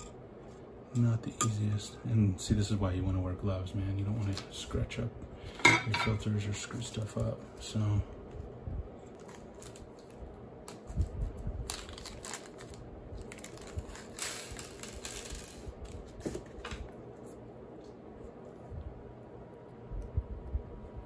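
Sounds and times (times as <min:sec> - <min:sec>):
plastic bag rustling: 0:09.0 - 0:17.5.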